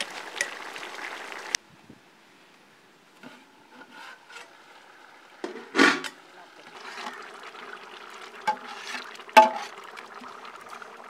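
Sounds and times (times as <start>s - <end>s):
curry simmering and sizzling: 0.0s - 1.6s, 3.1s - 11.0s
ladle stirring pot: 5.4s - 10.3s.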